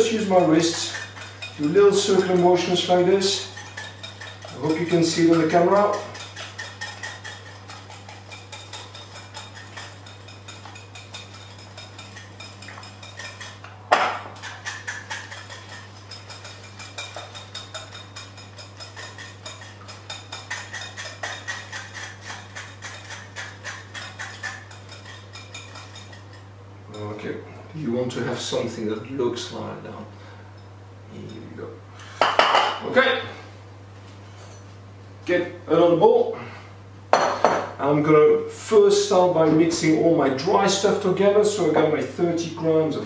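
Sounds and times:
whisk ticking against glass bowl: 0.0 - 13.7, 14.4 - 26.4.

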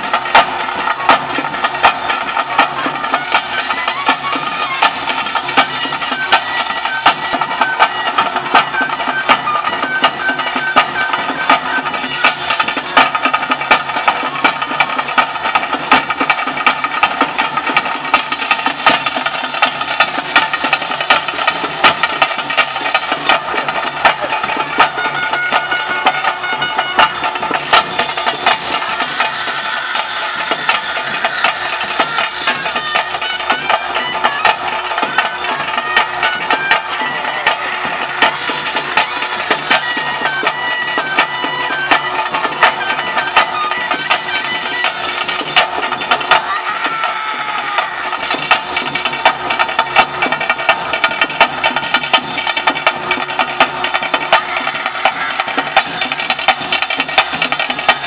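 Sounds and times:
drums beating fast rhythm: 0.0 - 58.0
sustained melody: 19.1 - 46.0.

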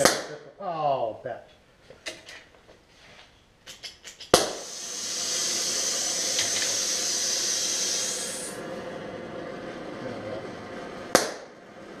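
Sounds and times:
gas catching with a pop: 3.8 - 5.1, 11.1 - 11.5
gas torch igniter clicks: 4.1 - 7.1
torch flame hissing: 4.3 - 9.6.

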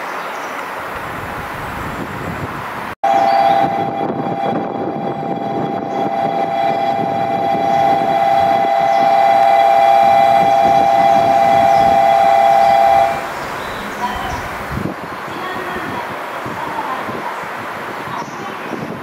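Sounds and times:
moving train rumble: 0.5 - 18.2
train horn two-pitch tone: 3.0 - 13.3.

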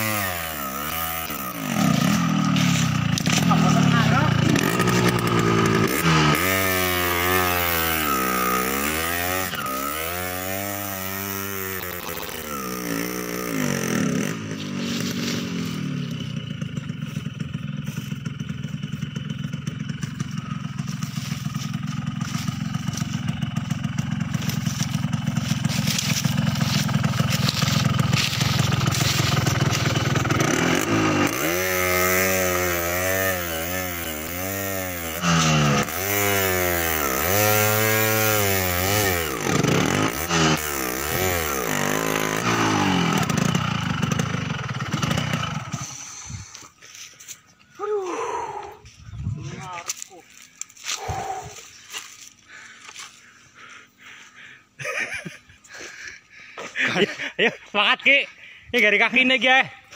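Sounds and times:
motorcycle engine revving hard: 0.0 - 46.4.

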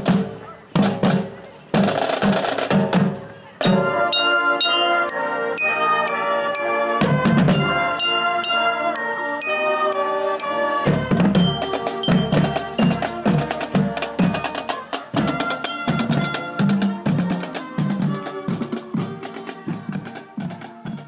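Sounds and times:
ringing marching bell notes: 3.6 - 21.0
bass drums beating: 7.0 - 8.3, 10.9 - 18.2.

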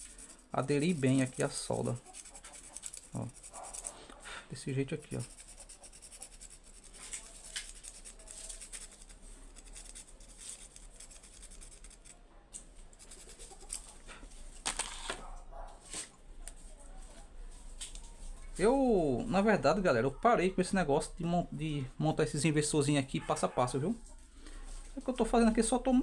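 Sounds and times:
wire being scraped: 0.0 - 16.6.

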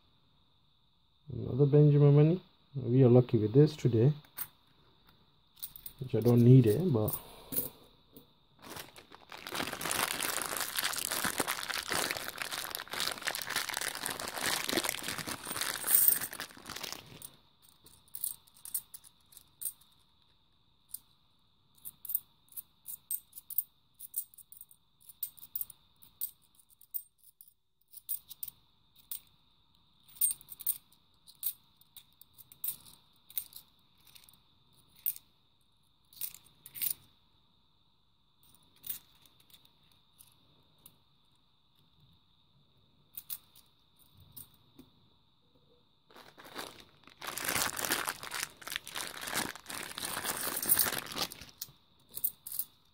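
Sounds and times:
plastic crinkling and rustling: 8.6 - 17.4, 46.1 - 51.7
coins clicking together: 15.8 - 16.2.

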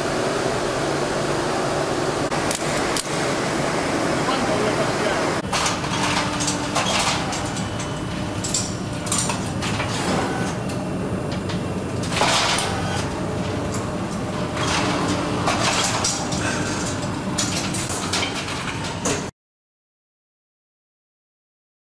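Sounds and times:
steady machine hum: 0.0 - 19.3
knocks clatter and scraping: 5.4 - 19.3.

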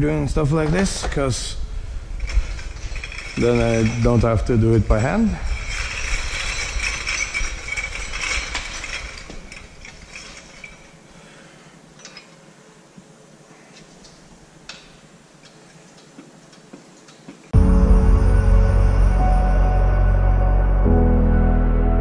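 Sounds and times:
loud rattling: 2.1 - 11.0
metallic clinks of tools: 2.2 - 4.5, 5.2 - 11.1, 12.0 - 12.4
music: 17.6 - 22.0.

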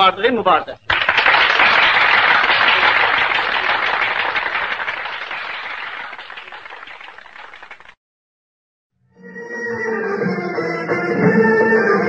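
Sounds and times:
crowd applauding: 0.9 - 8.0.

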